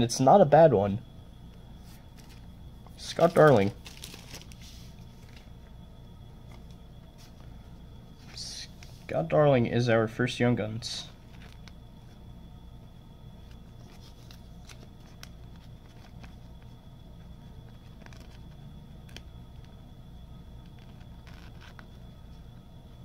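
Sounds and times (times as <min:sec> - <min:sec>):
low hum: 0:00.0 - 0:23.0
card and plastic sleeve handled: 0:01.8 - 0:05.5, 0:11.2 - 0:11.8, 0:13.4 - 0:19.8, 0:20.6 - 0:22.1.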